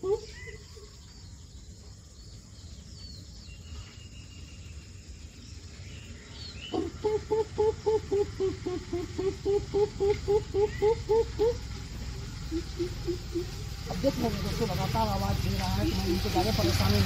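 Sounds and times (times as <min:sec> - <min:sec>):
man imitating bird hoots: 0:00.0 - 0:00.5, 0:06.7 - 0:11.7, 0:12.5 - 0:13.6
faint bird chirps: 0:00.0 - 0:14.2.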